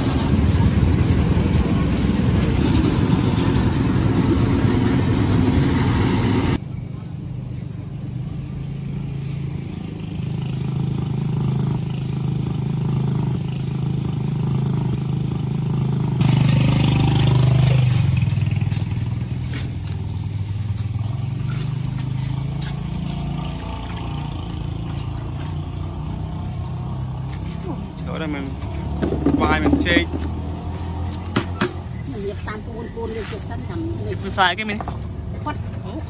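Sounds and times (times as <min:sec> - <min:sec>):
vehicle engines humming: 0:00.0 - 0:36.0
vehicle passing close: 0:08.6 - 0:34.7.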